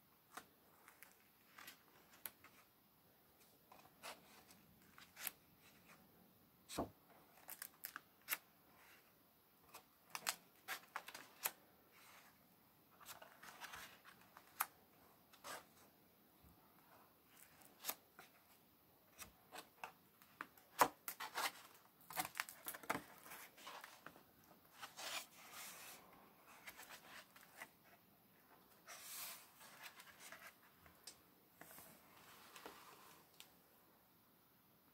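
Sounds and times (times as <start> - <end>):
paper pages rustling: 19.2 - 28.0.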